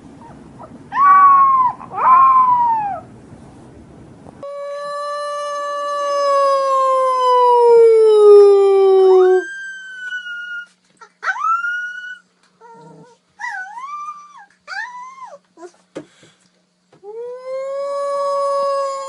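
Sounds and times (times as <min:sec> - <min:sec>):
puppies howling: 0:00.2 - 0:03.1, 0:05.0 - 0:15.4.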